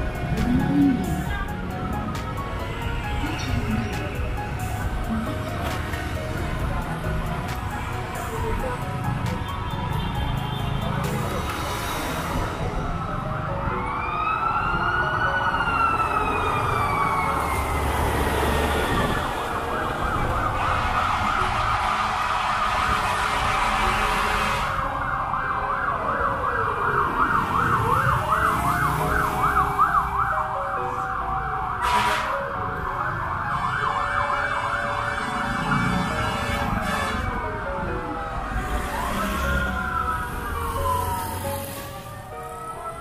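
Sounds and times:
fire truck siren: 0.0s - 7.9s, 8.6s - 43.0s
traffic rumble: 0.0s - 43.0s
second siren wailing: 13.4s - 43.0s.

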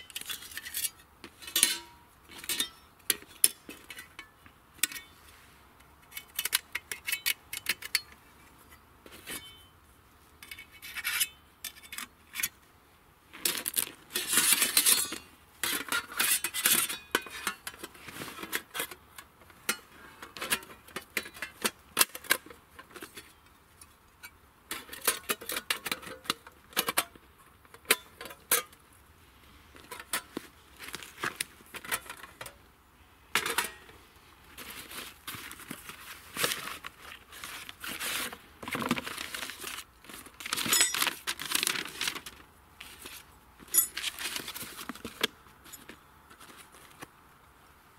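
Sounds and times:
metal plates clinking and scraping: 0.0s - 5.2s, 14.1s - 23.4s, 29.8s - 30.4s, 33.4s - 34.0s, 40.5s - 41.6s, 43.7s - 44.7s.

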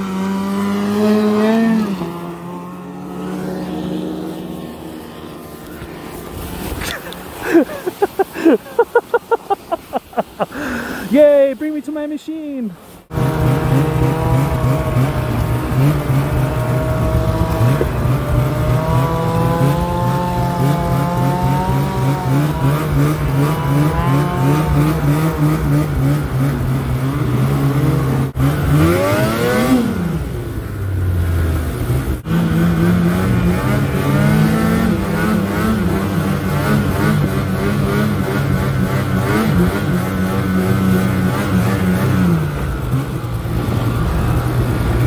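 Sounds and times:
snowmobile engine running: 0.0s - 45.0s.

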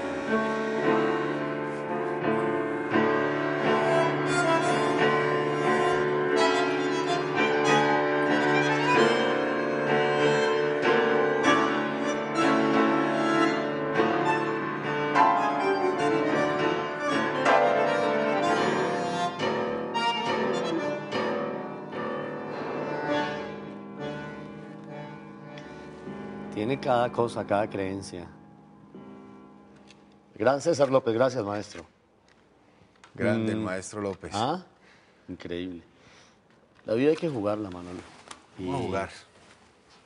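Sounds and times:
bandoneon sustained notes: 0.0s - 29.6s
grand piano: 0.0s - 31.9s.

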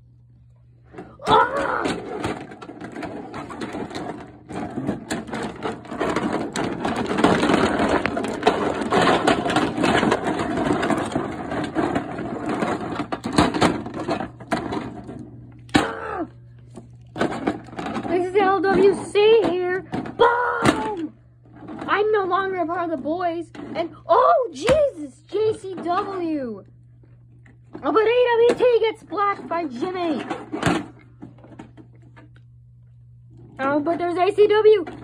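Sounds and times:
plastic action figures clattering: 1.0s - 16.1s, 16.7s - 26.5s, 27.7s - 32.3s, 33.4s - 35.0s.

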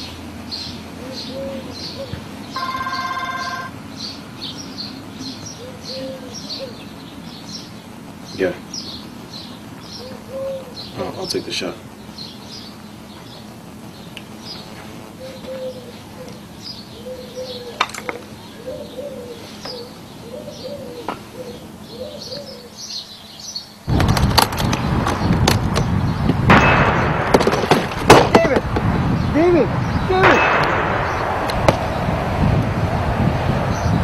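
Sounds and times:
birds chirping: 0.0s - 34.0s
dove cooing: 0.9s - 3.7s, 5.3s - 7.0s, 10.0s - 11.2s, 15.1s - 23.1s
loud rush of noise: 23.8s - 34.0s
sharp knocks: 30.2s - 31.9s.

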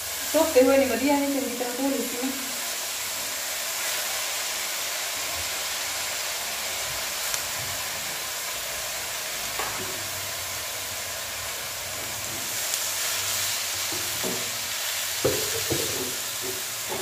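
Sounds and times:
leaves sizzling in hot oil: 0.0s - 17.0s
spatula stirring leaves: 9.5s - 17.0s.

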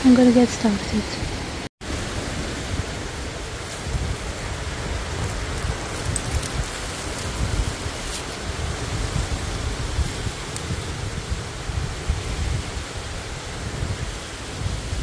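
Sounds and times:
wind buffeting microphone: 0.0s - 15.0s
faint ticks and rustles: 4.9s - 9.4s.

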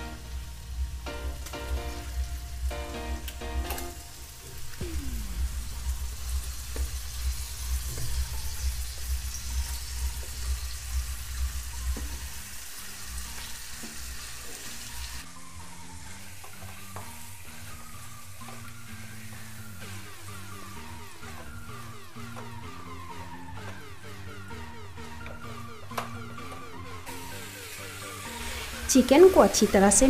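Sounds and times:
chicken sizzling in oil: 0.0s - 15.2s, 16.0s - 21.5s, 27.1s - 30.0s.

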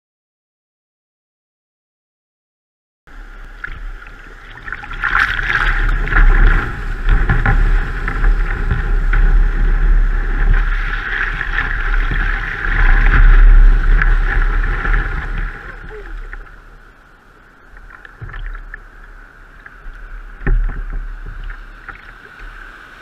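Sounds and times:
surf splashing around kayak: 3.1s - 23.0s
wind buffeting microphone: 3.5s - 17.0s.

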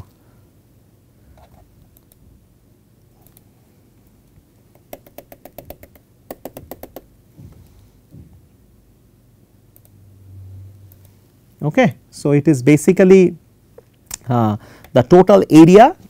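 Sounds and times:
computer clicks: 4.7s - 7.1s, 9.7s - 10.0s.

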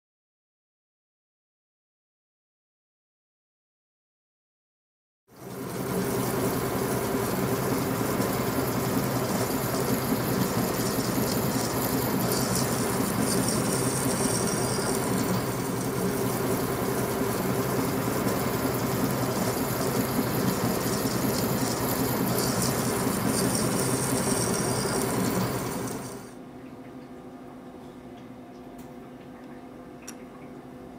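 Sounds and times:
metal lathe humming: 5.4s - 26.3s
drill cutting hiss: 5.7s - 26.3s.

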